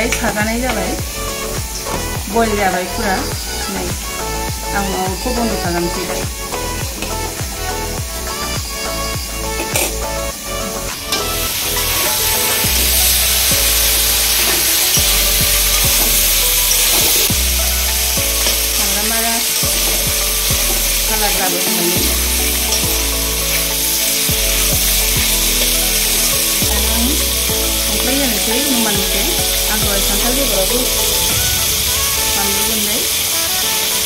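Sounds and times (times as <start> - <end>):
chicken sizzling in a wok: 11.2 - 34.0.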